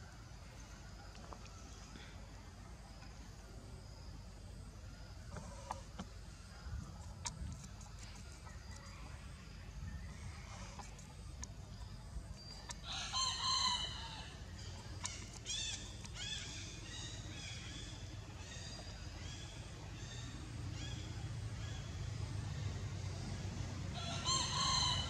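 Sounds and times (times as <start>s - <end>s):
low background rumble: 0.0s - 25.0s
rooster crowing: 12.8s - 14.4s, 24.0s - 25.0s.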